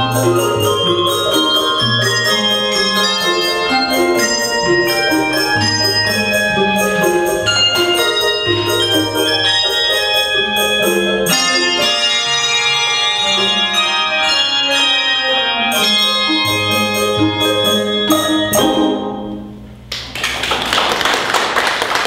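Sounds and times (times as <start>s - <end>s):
handbell choir ringing: 0.0s - 18.6s
audience applause: 19.9s - 22.0s.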